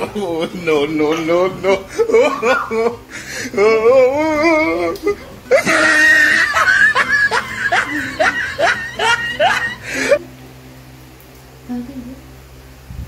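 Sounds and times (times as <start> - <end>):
person laughing: 0.0 - 10.3.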